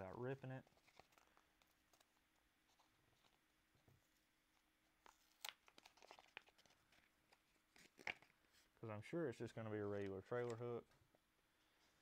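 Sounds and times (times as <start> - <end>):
package crinkling: 0.6 - 3.4, 5.0 - 8.4.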